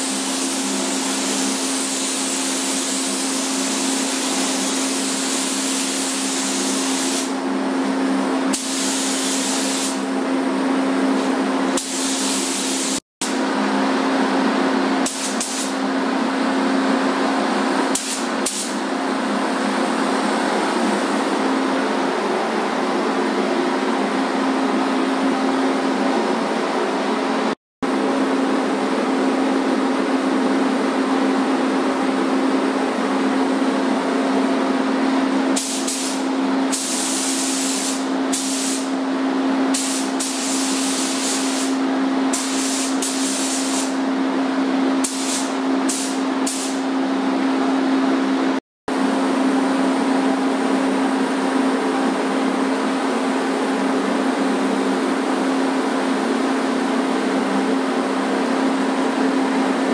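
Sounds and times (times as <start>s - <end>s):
paint spray gun hissing: 0.0s - 7.4s, 8.5s - 10.1s, 11.8s - 13.0s, 15.0s - 15.8s, 17.9s - 18.8s, 35.6s - 39.0s, 39.7s - 44.0s, 45.0s - 46.8s.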